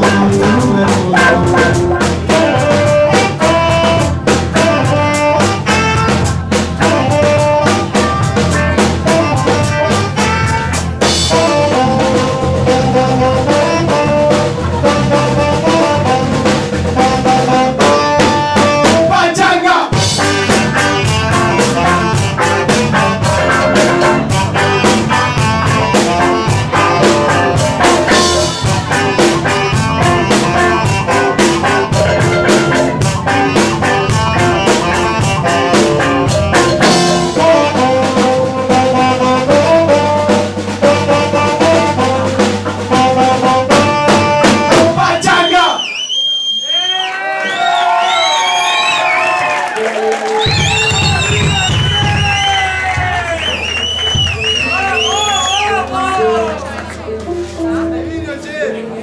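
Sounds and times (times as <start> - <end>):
electric guitar: 0.0 - 19.2, 19.9 - 45.6, 49.0 - 59.0
saxophone melody: 0.0 - 19.2, 20.0 - 45.6, 49.8 - 59.0
drum kit steady beat: 0.0 - 45.8, 50.3 - 56.3.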